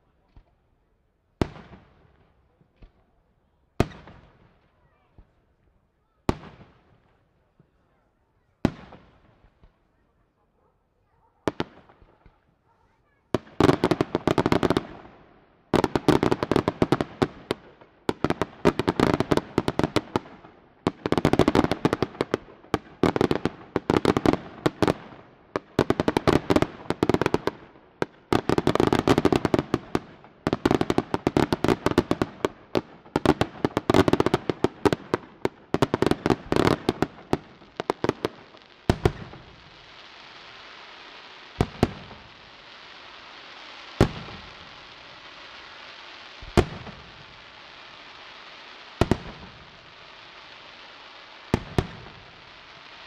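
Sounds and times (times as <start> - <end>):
fireworks cracking volleys: 11.5 - 53.0
steady hiss: 36.4 - 53.0.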